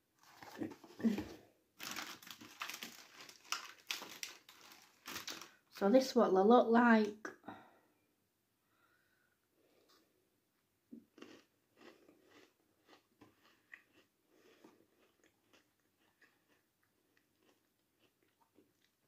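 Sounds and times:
crunchy biscuit chewing: 0:11.0 - 0:19.0.

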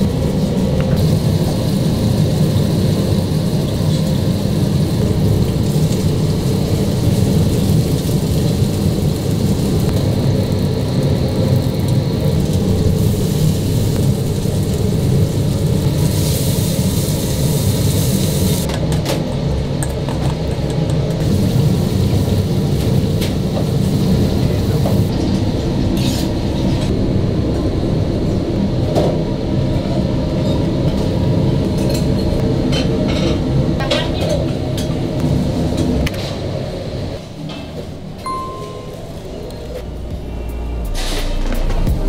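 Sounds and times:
gas stove burners rumbling: 0:00.0 - 0:42.0
food sizzling in pans: 0:01.0 - 0:18.7.

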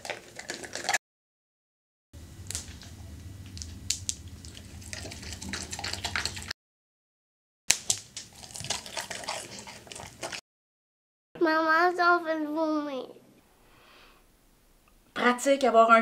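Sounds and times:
dog licking and eating: 0:03.6 - 0:06.5, 0:08.2 - 0:10.4.

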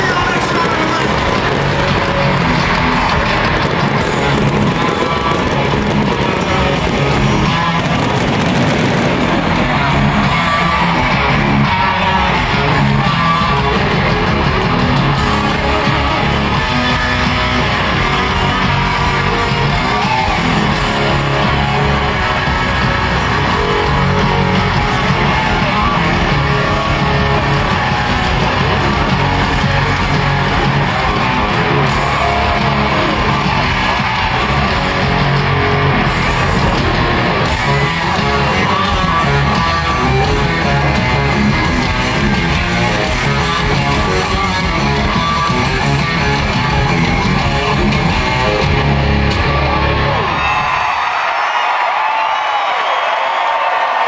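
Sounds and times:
live country-rock band: 0:00.0 - 0:54.0
stadium crowd: 0:00.0 - 0:54.0.

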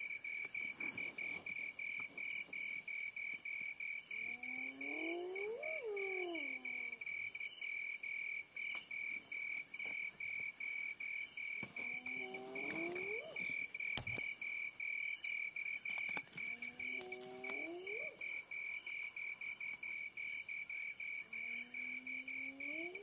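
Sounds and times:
cricket chirping: 0:00.0 - 0:23.0
animal low rising call: 0:04.1 - 0:07.0, 0:11.8 - 0:13.5, 0:16.5 - 0:18.2, 0:21.4 - 0:23.0.

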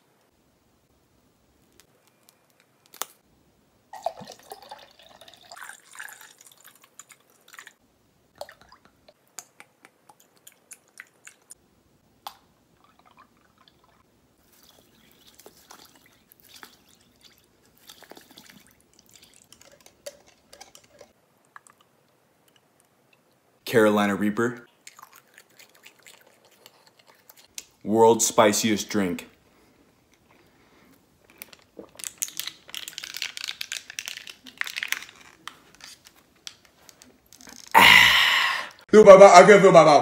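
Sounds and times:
sauce squelching and sputtering: 0:12.7 - 0:23.3, 0:24.7 - 0:27.8.

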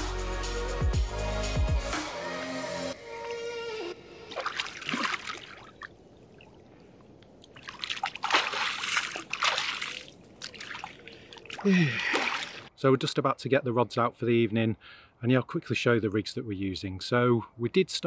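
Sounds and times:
music: 0:00.0 - 0:04.3
water splashing and sloshing: 0:04.0 - 0:12.8.

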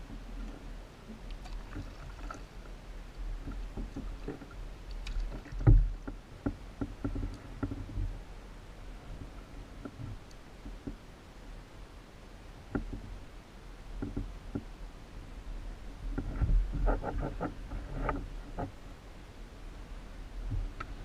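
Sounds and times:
paddle knocking against kayak: 0:03.4 - 0:04.6.

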